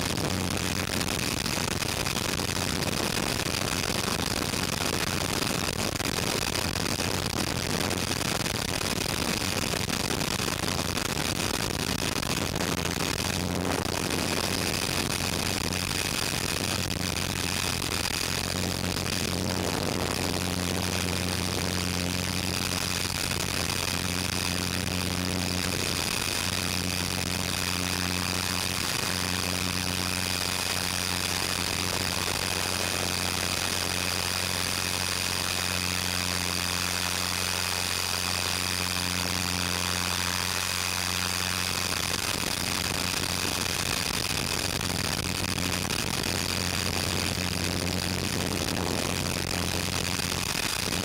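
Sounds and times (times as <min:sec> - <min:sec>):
rc helicopter rotor and motor: 0:13.0 - 0:51.0.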